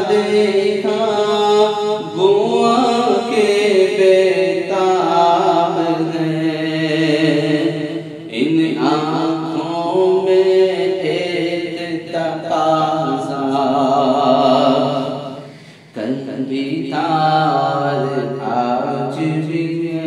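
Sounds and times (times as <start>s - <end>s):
man chanting: 0.0s - 20.0s.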